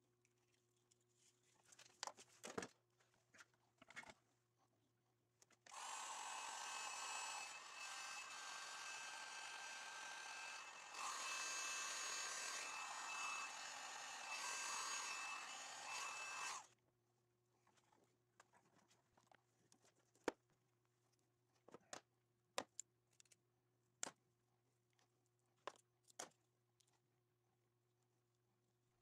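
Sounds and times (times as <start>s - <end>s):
sharp clicks of wires handled: 22.6s - 23.4s, 25.0s - 27.0s.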